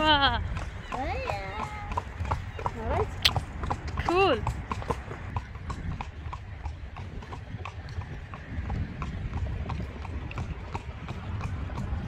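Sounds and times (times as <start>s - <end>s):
horse hooves clip-clopping on pavement: 0.0s - 12.0s.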